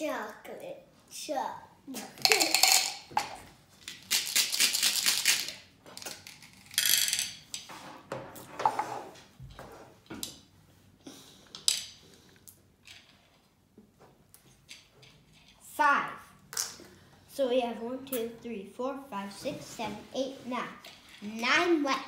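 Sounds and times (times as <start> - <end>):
candies clattering onto plate: 2.2 - 7.4
candies rattling in plastic cup: 3.9 - 6.8.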